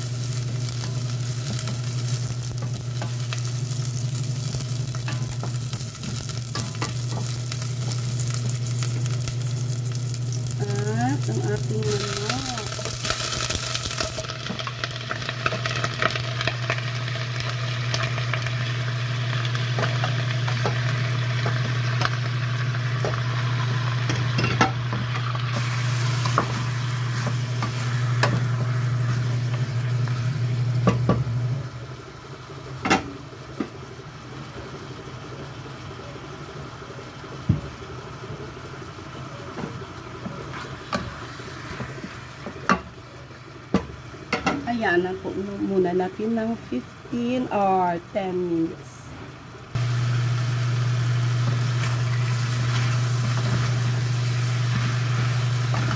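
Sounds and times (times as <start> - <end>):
low steady hum: 0.0 - 34.7
chicken sizzling in a pot: 0.0 - 55.9.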